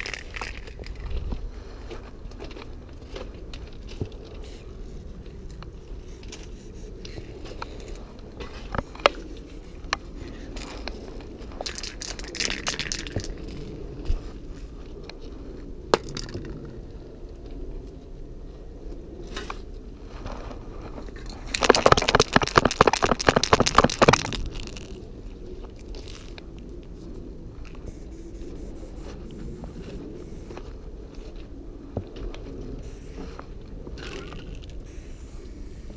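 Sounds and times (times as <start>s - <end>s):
crunching on gravel: 0.0s - 9.4s, 10.3s - 14.5s, 20.0s - 26.5s
scattered clicks and knocks: 21.2s - 25.0s.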